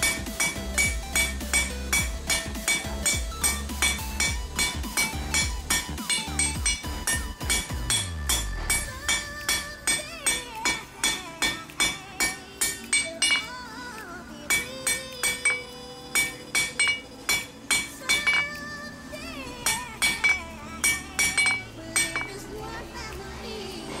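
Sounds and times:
electronic music: 0.0 - 9.4
hammer ringing on steel bar: 0.0 - 13.5, 14.5 - 18.5, 19.7 - 22.4.

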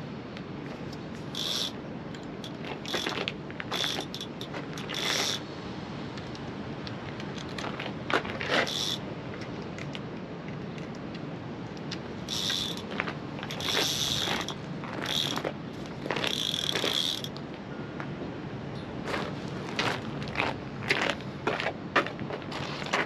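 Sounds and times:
fishing reel whirring and clicking: 1.2 - 5.5, 8.4 - 9.0, 12.2 - 17.4.

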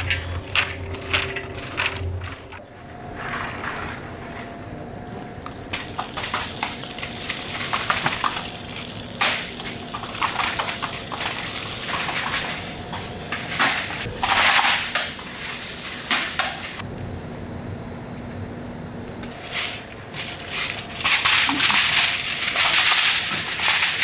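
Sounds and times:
hard pieces clattering: 0.0 - 2.6, 5.8 - 16.8, 19.3 - 24.0
machinery hum: 0.0 - 24.0.

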